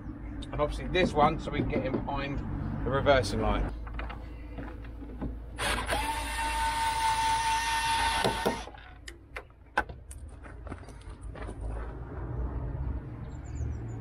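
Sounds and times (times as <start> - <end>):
cordless drill running: 5.6 - 8.7.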